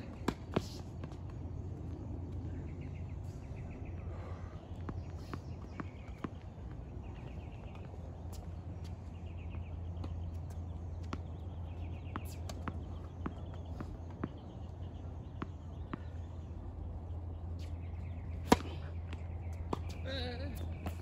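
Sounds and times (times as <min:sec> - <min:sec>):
tennis ball bouncing: 0:00.2 - 0:01.3, 0:09.5 - 0:16.4, 0:18.1 - 0:20.0
racket striking ball: 0:18.4 - 0:18.8.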